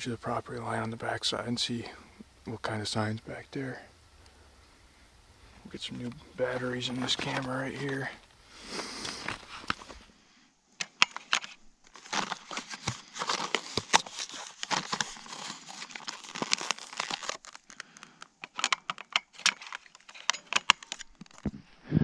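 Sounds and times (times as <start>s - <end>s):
plastic blister pack crinkling: 5.7s - 8.4s, 9.0s - 10.0s, 11.0s - 21.5s.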